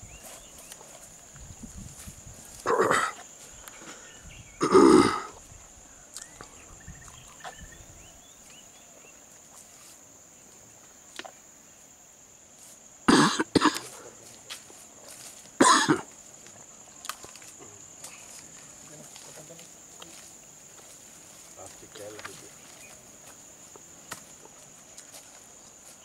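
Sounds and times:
high insect drone: 0:00.0 - 0:26.0
person coughing: 0:04.6 - 0:05.3, 0:13.1 - 0:13.9, 0:15.6 - 0:16.1.

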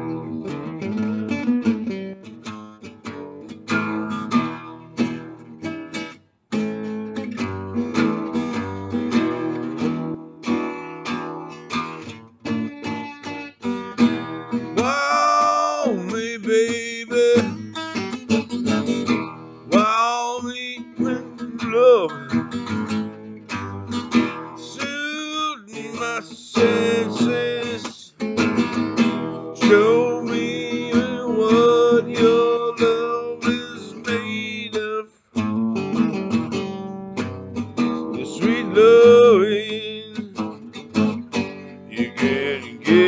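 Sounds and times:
acoustic guitar blues: 0:00.0 - 0:43.0
wordless vocals: 0:14.8 - 0:17.8, 0:19.7 - 0:22.3, 0:24.4 - 0:28.3, 0:29.5 - 0:35.4, 0:38.1 - 0:40.4, 0:41.9 - 0:43.0.

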